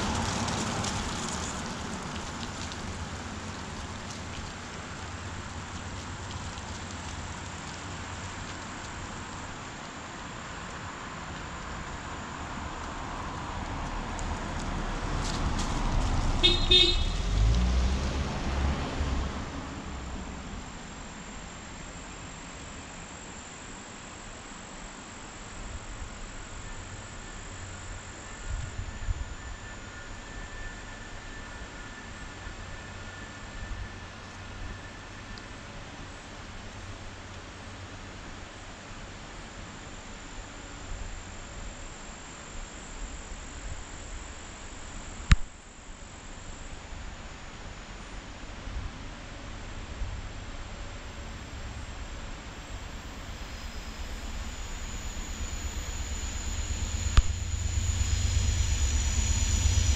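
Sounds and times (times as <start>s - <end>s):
car passing: 0.0s - 7.3s, 12.5s - 21.5s, 50.3s - 59.9s
insects trilling: 50.9s - 59.9s.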